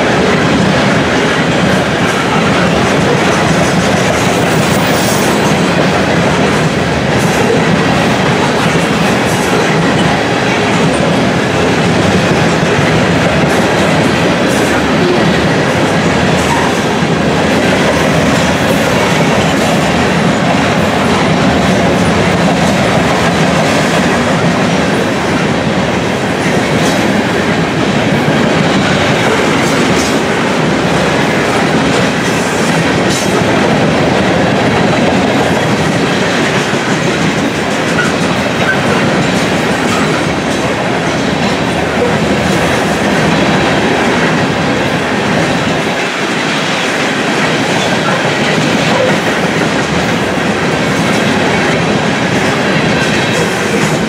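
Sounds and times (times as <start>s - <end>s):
freight train rolling past: 0.0s - 54.0s
wheels clacking over rail joints: 0.0s - 54.0s.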